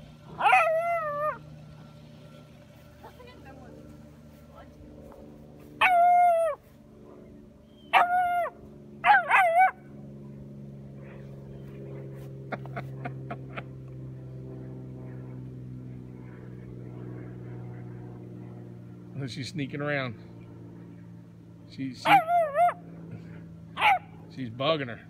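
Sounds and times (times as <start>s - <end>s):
puppy barking: 0.3s - 1.4s, 5.8s - 6.6s, 7.9s - 9.8s, 22.0s - 22.8s, 23.8s - 24.1s.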